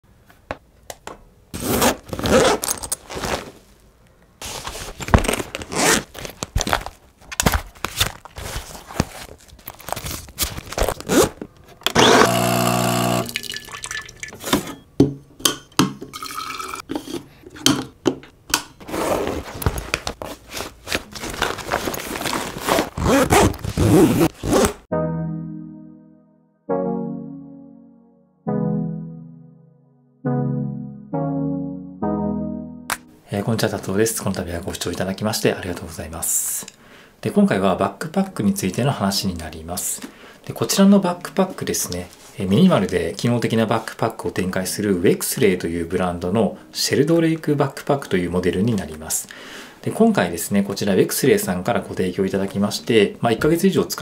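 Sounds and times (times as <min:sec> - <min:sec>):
backpack compartments opening: 0:01.6 - 0:03.6, 0:04.4 - 0:12.1, 0:18.8 - 0:24.8
coffee maker hissing and humming: 0:12.0 - 0:13.4
coffee pouring into carafe: 0:12.3 - 0:14.4, 0:16.2 - 0:16.8.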